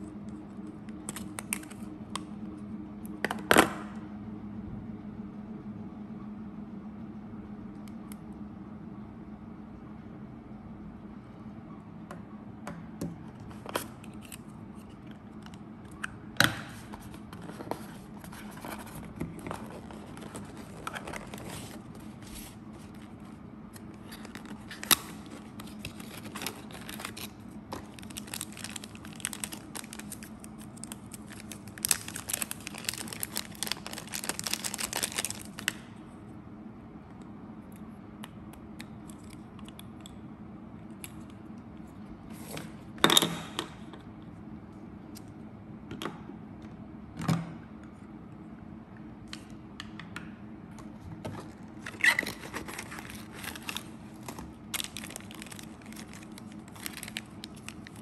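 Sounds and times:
steady low hum: 0:00.0 - 0:58.0
cardboard and paper crinkling: 0:16.8 - 0:35.7, 0:51.3 - 0:58.0.

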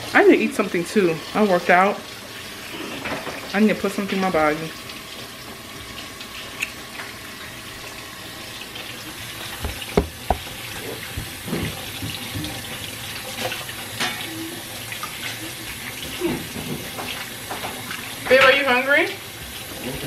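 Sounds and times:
faucet running into sink: 0:00.0 - 0:20.0
hands washing under water: 0:09.1 - 0:13.7
sharp knocks: 0:09.6 - 0:10.6.

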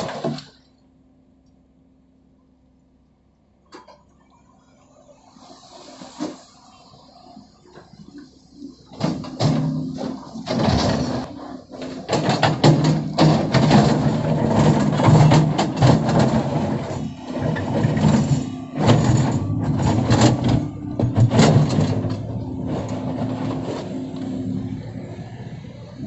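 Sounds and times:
diesel engine running: 0:00.0 - 0:26.0
bucket scraping soil and stones: 0:05.6 - 0:06.6, 0:09.0 - 0:24.6.

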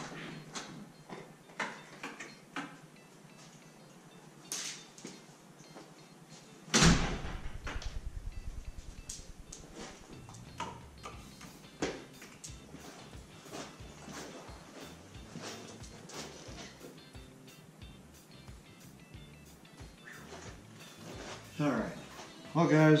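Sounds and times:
loud rattling bang: 0:06.8 - 0:08.6.

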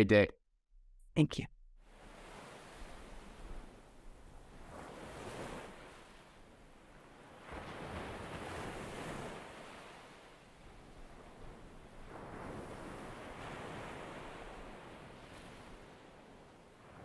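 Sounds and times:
ocean surf: 0:01.8 - 0:17.0.

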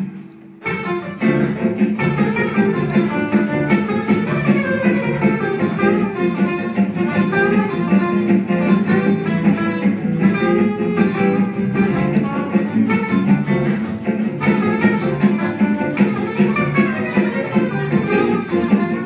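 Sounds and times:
acoustic guitars strumming: 0:00.0 - 0:19.0
violin: 0:00.6 - 0:19.0
upright double bass: 0:00.7 - 0:19.0.

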